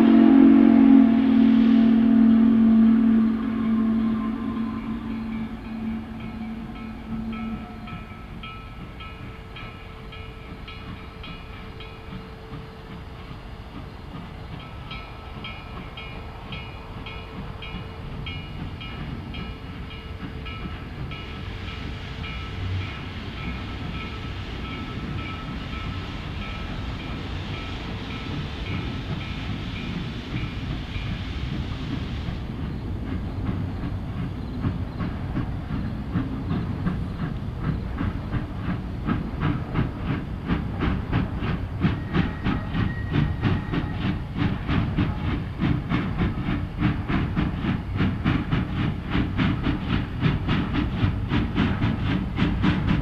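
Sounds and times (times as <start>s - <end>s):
steam exhaust chuffs: 0.0s - 9.8s, 17.4s - 53.0s
steam hissing: 0.0s - 53.0s
locomotive bell ringing: 1.8s - 12.2s.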